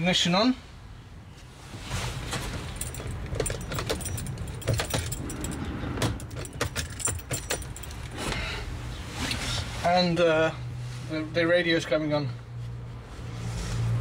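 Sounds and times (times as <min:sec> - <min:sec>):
car keys jangling: 0:02.6 - 0:08.2.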